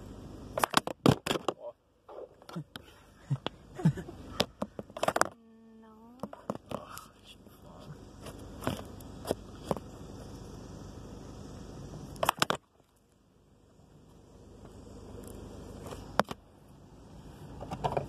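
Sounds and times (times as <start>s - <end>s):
steady hiss: 6.8s - 18.0s.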